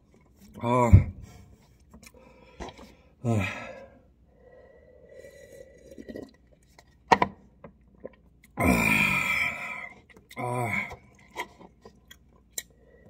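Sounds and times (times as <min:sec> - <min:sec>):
man burping: 0:00.6 - 0:01.2, 0:03.2 - 0:03.9, 0:08.6 - 0:11.0
person sipping broth: 0:03.7 - 0:06.9, 0:08.0 - 0:13.0.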